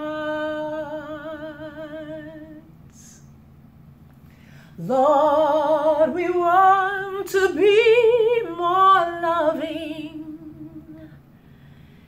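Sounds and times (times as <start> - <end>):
woman singing unaccompanied: 0.0 - 3.2, 4.8 - 11.2.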